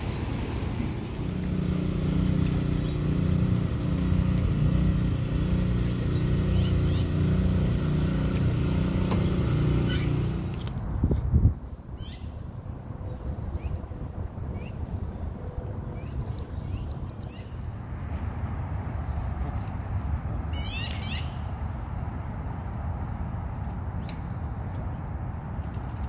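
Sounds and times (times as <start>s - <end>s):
engine running steadily: 0.0s - 11.4s.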